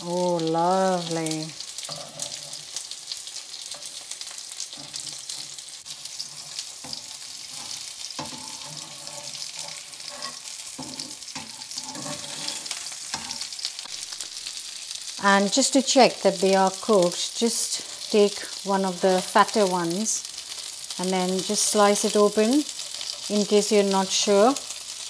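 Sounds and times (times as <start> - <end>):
chicken sizzling in oil: 0.0 - 25.0
metal tongs scraping pan: 1.0 - 14.0, 21.4 - 24.6.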